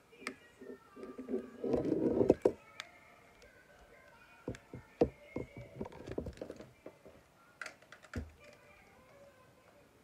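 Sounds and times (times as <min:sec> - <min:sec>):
plastic toy clicks and knocks: 0:07.6 - 0:08.6.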